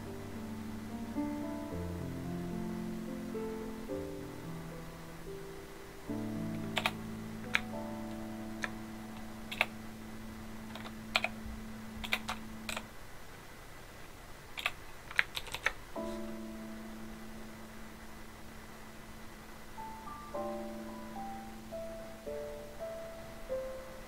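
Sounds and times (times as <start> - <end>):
soft background music: 0.0 - 13.0, 16.0 - 18.4, 19.2 - 24.0
keyboard key clicks: 6.7 - 7.7, 9.5 - 9.7, 10.7 - 11.4, 12.0 - 12.8, 14.6 - 15.8.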